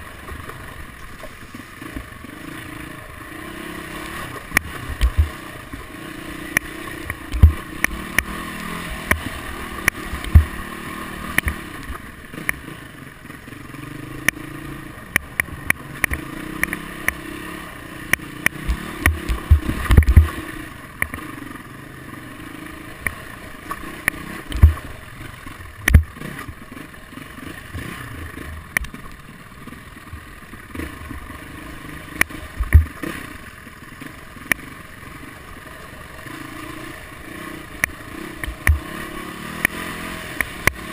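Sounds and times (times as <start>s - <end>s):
dirt bike engine: 0.0s - 40.9s
knocks and clatter over bumps: 4.0s - 5.9s, 6.5s - 12.7s, 18.1s - 21.3s, 23.0s - 31.3s, 32.0s - 33.4s, 37.8s - 40.9s.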